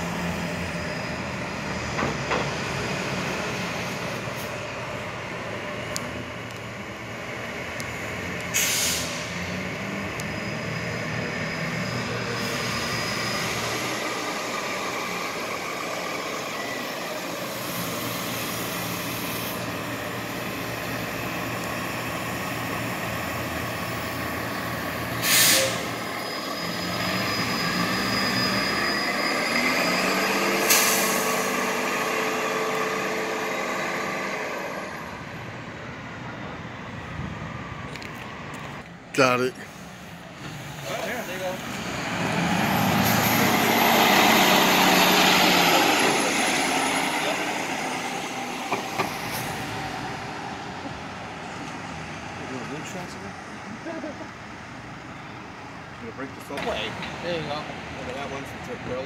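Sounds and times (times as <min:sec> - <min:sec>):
rising whine: 0:00.0 - 0:35.6
bus engine pulling away: 0:00.0 - 0:59.0
air brake hisses: 0:08.5 - 0:09.3, 0:12.2 - 0:14.0, 0:25.1 - 0:26.0, 0:30.6 - 0:31.6.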